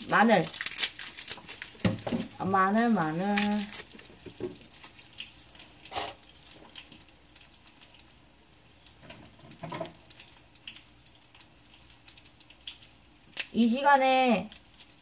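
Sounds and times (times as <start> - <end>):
kitchen clatter: 5.8 - 6.2, 9.0 - 10.0.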